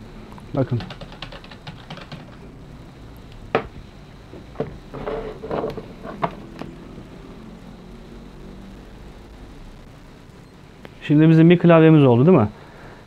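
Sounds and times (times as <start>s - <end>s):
knocks on wooden table: 3.5s - 3.7s.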